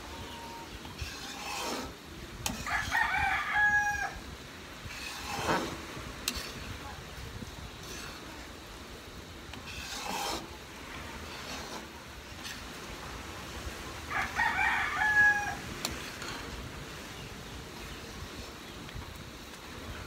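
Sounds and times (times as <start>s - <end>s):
rooster crowing: 2.6s - 4.2s, 14.1s - 15.7s
thick mixture bubbling in pan: 4.3s - 20.0s.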